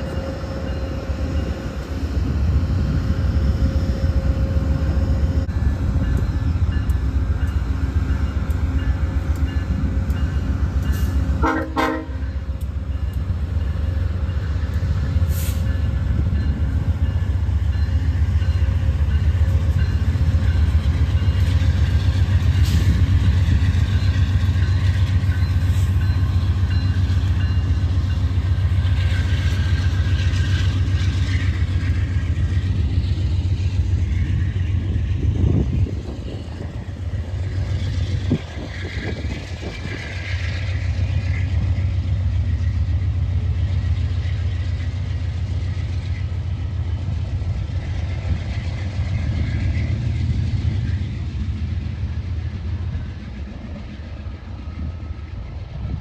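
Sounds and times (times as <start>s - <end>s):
diesel locomotive engine rumble: 0.0s - 56.0s
locomotive horn blast: 11.4s - 12.4s.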